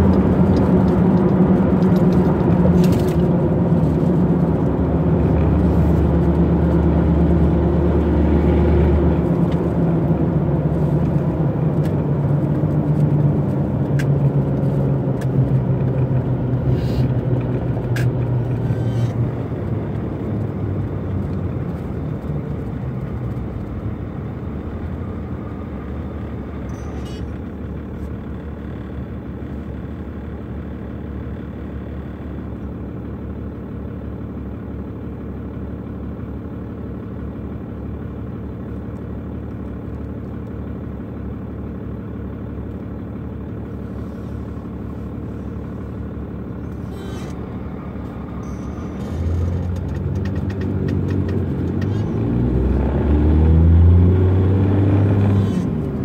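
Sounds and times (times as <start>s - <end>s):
diesel truck engine idling: 0.0s - 56.0s.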